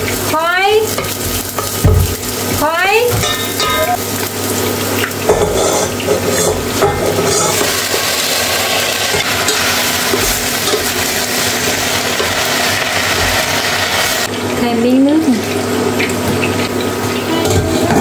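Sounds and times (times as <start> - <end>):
chicken sizzling in hot oil: 0.0 - 18.0
knocks in steel pot: 1.7 - 2.2.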